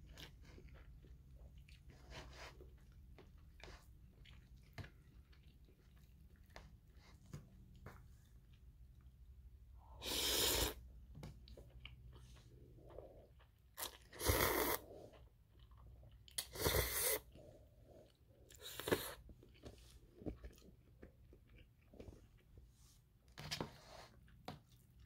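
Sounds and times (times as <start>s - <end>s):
soft chewing: 0.0s - 25.0s
noodles slurped: 9.8s - 10.8s, 12.5s - 15.3s, 16.3s - 17.5s.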